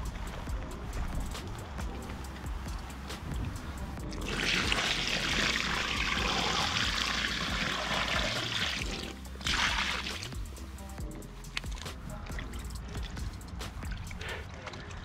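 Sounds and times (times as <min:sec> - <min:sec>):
water pouring and splashing: 0:03.4 - 0:10.6, 0:11.5 - 0:15.0.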